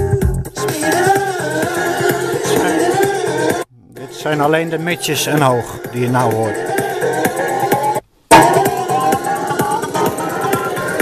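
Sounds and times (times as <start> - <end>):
deep subwoofer bass: 0.0 - 1.3
loud music on car audio: 0.0 - 11.0.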